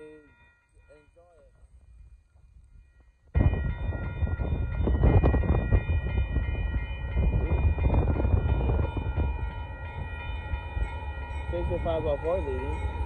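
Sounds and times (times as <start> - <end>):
train rumble: 2.8 - 13.0.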